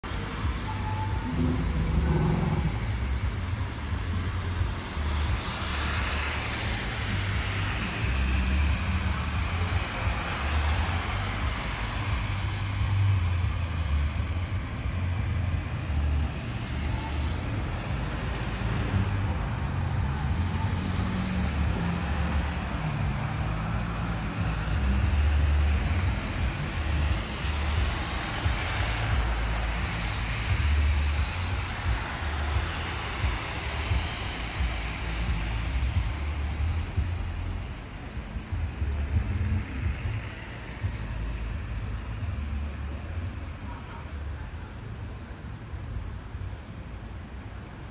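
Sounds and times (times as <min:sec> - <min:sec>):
rain: 0:00.0 - 0:47.9
car tyres hissing on wet road: 0:00.1 - 0:47.9
low rumble: 0:00.3 - 0:05.4.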